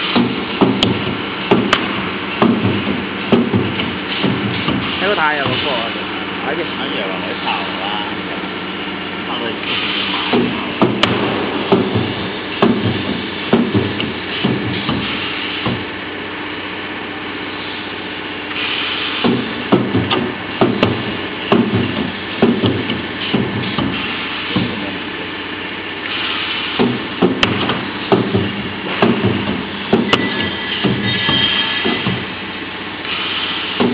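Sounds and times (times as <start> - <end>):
welding machine clunks: 0.0 - 5.8, 9.6 - 16.0, 18.5 - 24.9, 26.1 - 32.4, 33.0 - 33.9
welding machine hum: 0.0 - 33.9.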